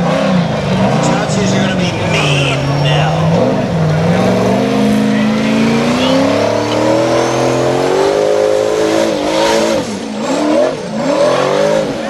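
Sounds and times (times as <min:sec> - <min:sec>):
buggy engine revving high: 0:00.0 - 0:12.0.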